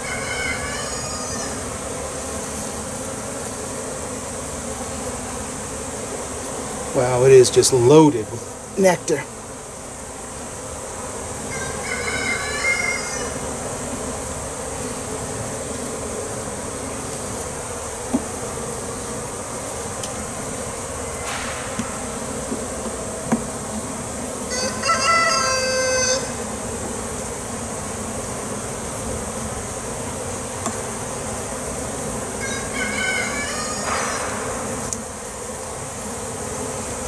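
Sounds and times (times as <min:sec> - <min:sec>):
rooster crowing: 0:00.0 - 0:01.8, 0:11.4 - 0:13.6, 0:24.4 - 0:26.4, 0:32.4 - 0:34.7
honeybees buzzing: 0:00.0 - 0:37.0
hive tool clicking on wood: 0:18.0 - 0:18.4, 0:20.0 - 0:20.2, 0:21.2 - 0:23.5, 0:30.6 - 0:30.9, 0:33.8 - 0:35.1.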